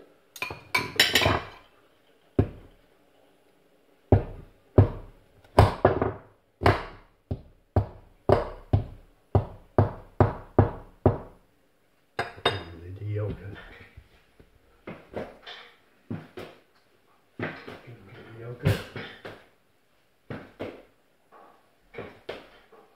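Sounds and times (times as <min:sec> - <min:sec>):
sharp knocks on a worktop: 0:04.1 - 0:11.4.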